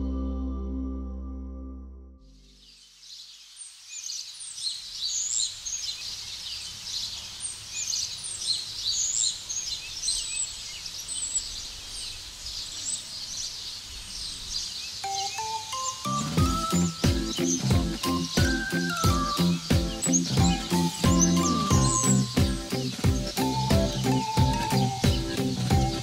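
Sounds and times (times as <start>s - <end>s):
faint low rumble: 0.0s - 2.6s
small birds chirping: 2.4s - 26.0s.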